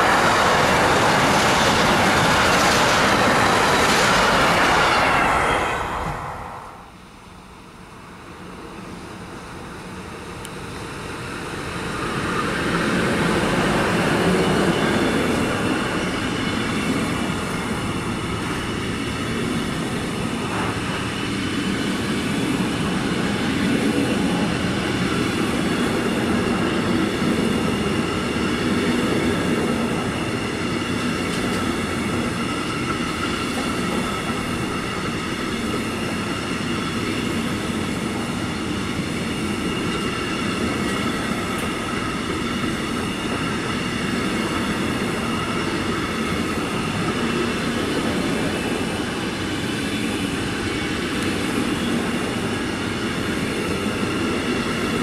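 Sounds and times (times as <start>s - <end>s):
train wheels rumbling on rail: 0.0s - 55.0s
high whine: 3.0s - 7.4s.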